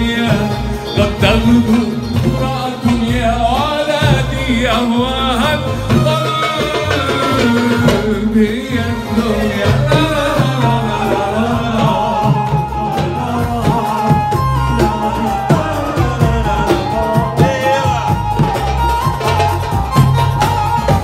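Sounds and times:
electronic keyboard melody: 0.0s - 21.0s
goblet drum rhythm: 0.0s - 21.0s.

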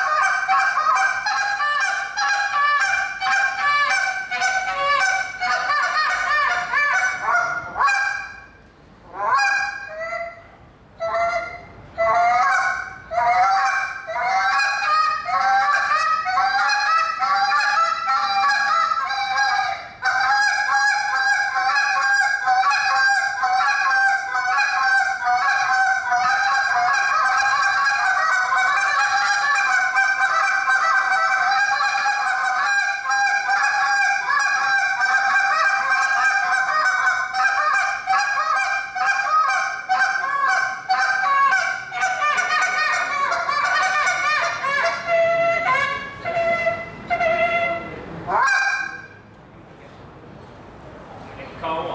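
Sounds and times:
goose call honks and clucks: 0.0s - 10.4s, 11.0s - 49.2s.

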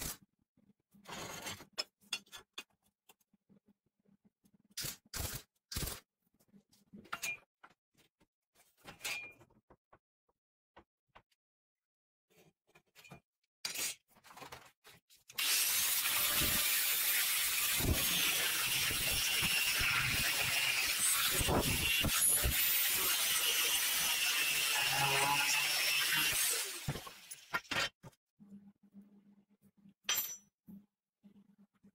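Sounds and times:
angle grinder cutting steel: 15.4s - 27.4s.

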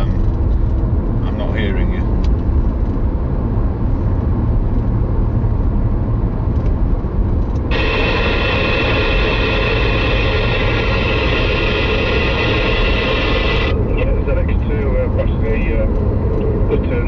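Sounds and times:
road and tyre rumble in car: 0.0s - 17.0s
radio static: 7.7s - 17.0s.

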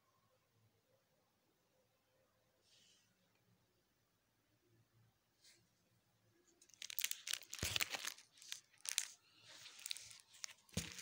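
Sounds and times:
plastic photo sleeves crinkling: 6.6s - 11.0s.

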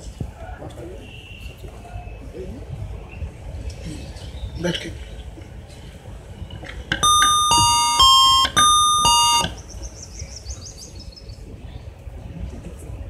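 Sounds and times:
electronic chime tune: 7.0s - 9.5s.

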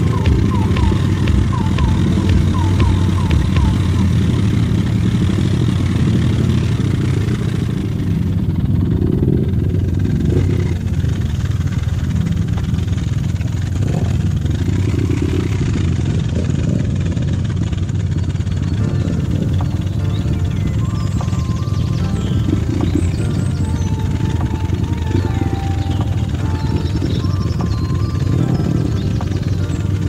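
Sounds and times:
dirt bike engine revving: 0.0s - 30.0s.

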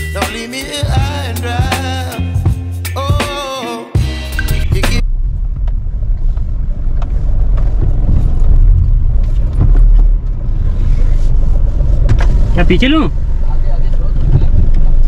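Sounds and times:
car engine and tyres rumbling: 4.8s - 15.0s.

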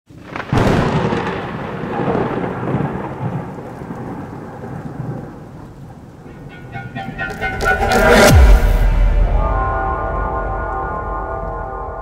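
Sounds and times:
rain: 0.1s - 8.3s
thunderclap with rolling rumble: 0.2s - 6.5s.

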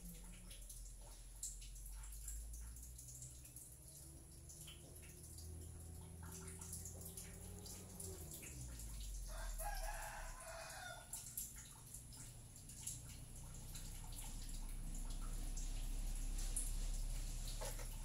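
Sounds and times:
low steady hum: 0.0s - 18.0s
rooster crowing: 9.3s - 11.2s.

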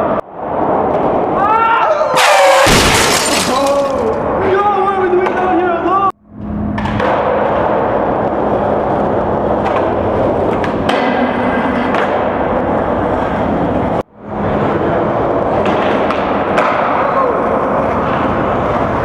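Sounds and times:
skateboard wheels rolling on concrete: 0.0s - 2.0s, 6.7s - 19.0s
skateboard clacks: 9.5s - 12.6s, 15.5s - 19.0s.

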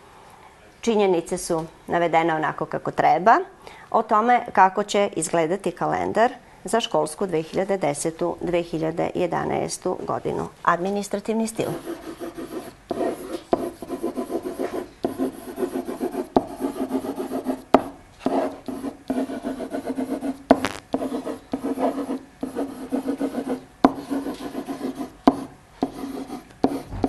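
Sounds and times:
squeaky pen strokes on whiteboard: 11.7s - 25.2s, 25.8s - 27.0s
pen tip tapping board: 25.3s - 26.0s.

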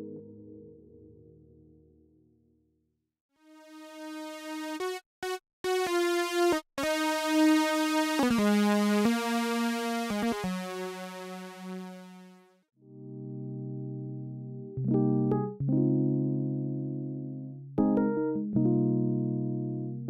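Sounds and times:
bright synthesizer lead melody: 3.6s - 12.4s.

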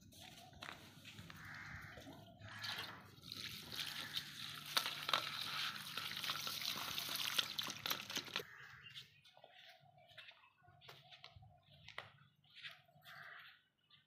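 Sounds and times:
water splashing: 2.5s - 8.4s
water poured into steel bowl: 2.6s - 8.4s.

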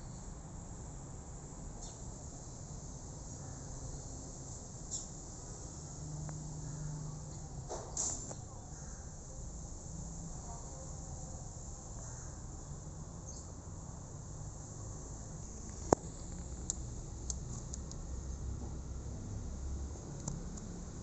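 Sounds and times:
faint ticks: 6.2s - 6.4s, 15.6s - 18.0s, 20.0s - 20.8s.

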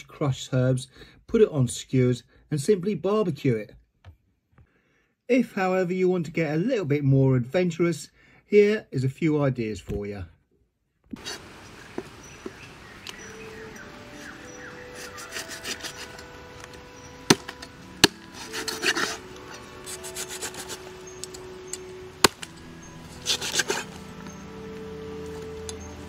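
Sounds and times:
cleaver scraping on wooden board: 11.2s - 12.5s, 14.2s - 24.4s
faint music: 12.2s - 26.0s
cleaver chopping: 14.9s - 24.3s.

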